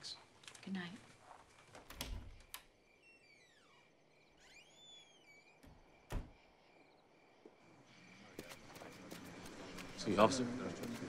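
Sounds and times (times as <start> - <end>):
sweeping whistled calls: 1.5 - 8.8.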